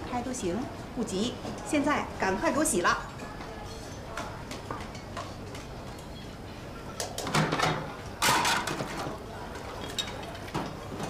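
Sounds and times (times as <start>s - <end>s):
plates clattering in a steel sink: 7.0s - 9.2s.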